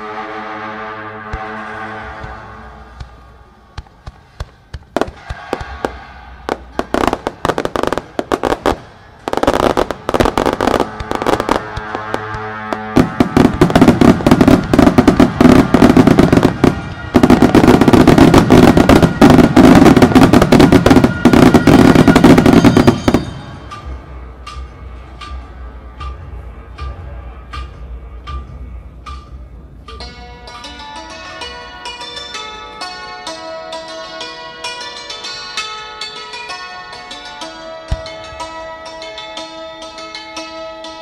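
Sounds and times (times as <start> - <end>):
music: 0.0 - 41.0
fireworks bangs and crackling: 2.2 - 24.1.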